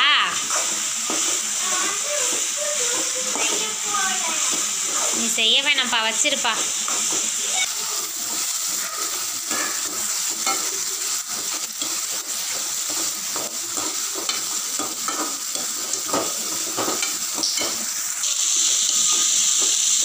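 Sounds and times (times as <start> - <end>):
vegetables sizzling in oil: 0.0 - 20.0
spatula scraping pan: 0.2 - 18.2.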